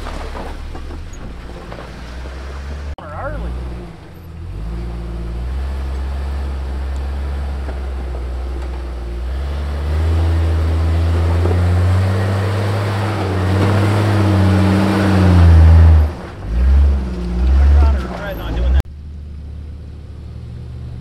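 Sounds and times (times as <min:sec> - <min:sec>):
off-road vehicle engine revving: 0:00.0 - 0:21.0.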